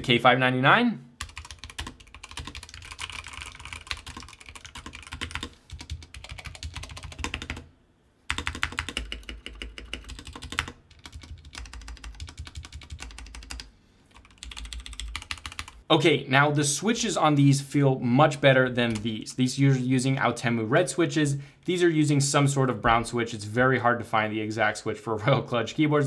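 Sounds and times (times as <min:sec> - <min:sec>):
mechanical keyboard typing: 0:01.2 - 0:07.7, 0:08.3 - 0:15.8.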